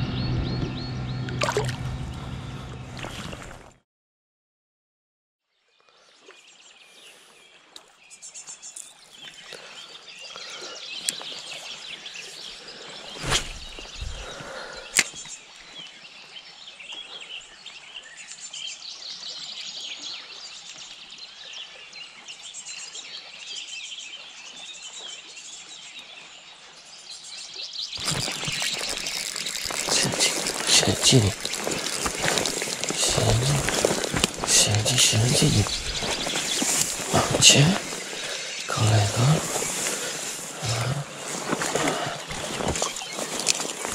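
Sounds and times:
birds singing: 0:00.0 - 0:02.6, 0:05.8 - 0:43.9
river water rushing: 0:28.0 - 0:43.9.

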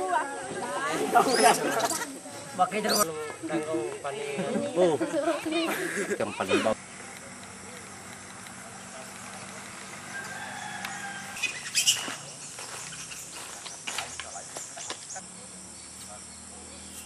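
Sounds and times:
rooster crowing: 0:09.8 - 0:12.1.

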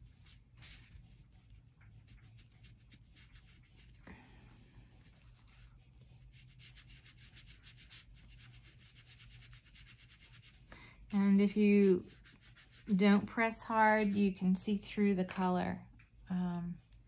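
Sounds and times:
oil pastel scratching on paper: 0:01.9 - 0:04.0, 0:05.0 - 0:10.6, 0:11.4 - 0:14.4.

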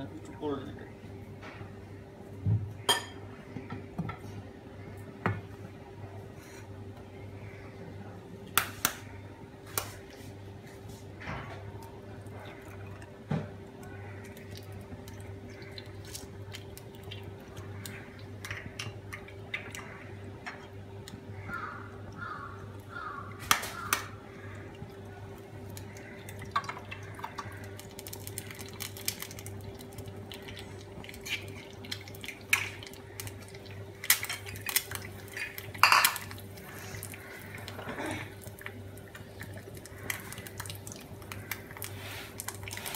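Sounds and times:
low electrical hum: 0:00.0 - 0:42.9
plates and pan clinking: 0:35.4 - 0:36.3.

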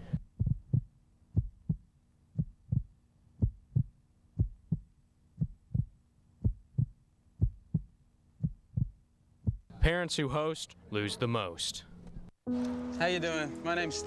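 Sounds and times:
heartbeat thumps: 0:00.0 - 0:09.7.

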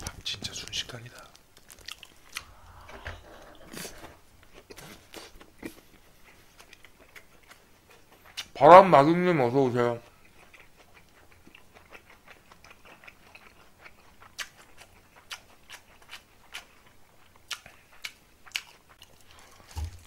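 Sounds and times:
wet chewing mouth clicks: 0:01.7 - 0:02.8.

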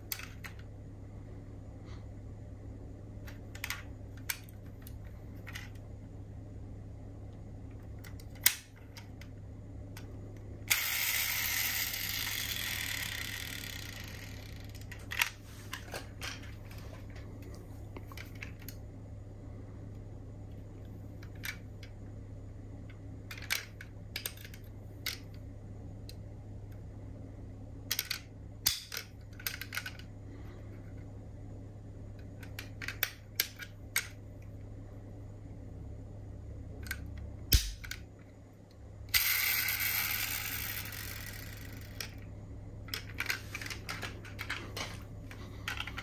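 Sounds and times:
steady low hum: 0:00.0 - 0:46.0
metal model cars clicking: 0:27.9 - 0:30.1.

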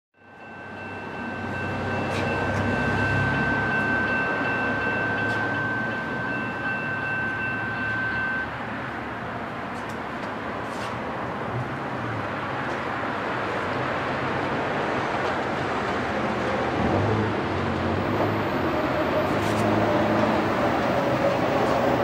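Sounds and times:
high ringing tone: 0:00.2 - 0:08.9
distant freight train rumble: 0:00.4 - 0:13.6, 0:14.2 - 0:22.0.

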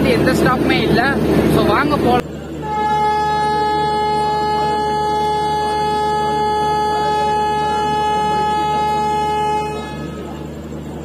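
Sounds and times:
locomotive horn blast: 0:02.6 - 0:11.0.

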